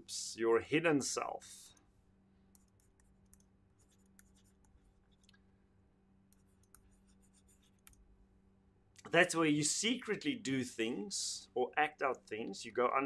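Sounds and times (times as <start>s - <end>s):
faint steady hum: 0.0s - 13.0s
stylus scratching on tablet screen: 2.5s - 5.4s, 6.3s - 8.0s.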